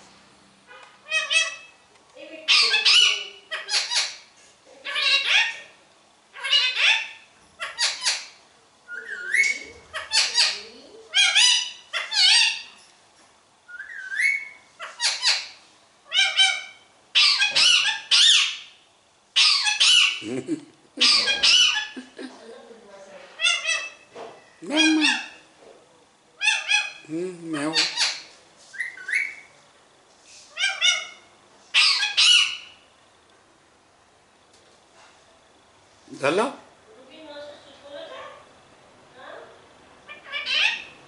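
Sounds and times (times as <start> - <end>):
parakeet squawking: 0.7 - 12.8, 13.9 - 18.8, 19.4 - 20.3, 21.0 - 22.3, 23.4 - 25.5, 26.4 - 29.5, 30.5 - 32.8, 40.1 - 41.0.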